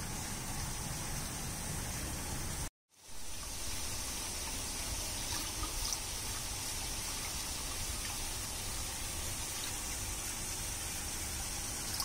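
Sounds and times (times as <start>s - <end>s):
fountain water splashing into pool: 3.1s - 12.0s.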